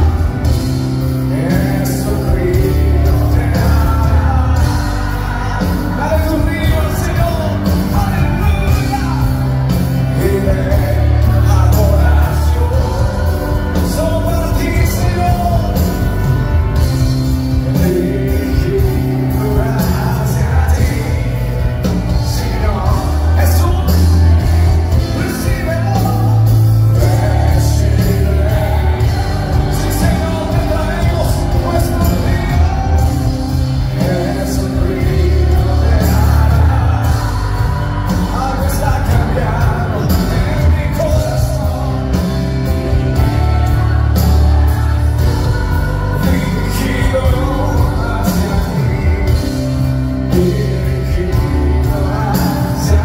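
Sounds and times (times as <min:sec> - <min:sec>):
band playing with strong bass: 0:00.0 - 0:53.0
man singing lead: 0:00.0 - 0:53.0.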